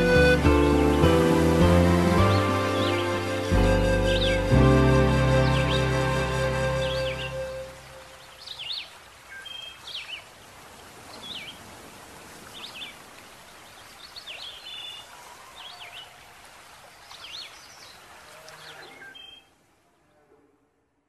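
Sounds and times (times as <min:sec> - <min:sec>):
birds chirping: 0:00.0 - 0:10.4, 0:16.8 - 0:19.6.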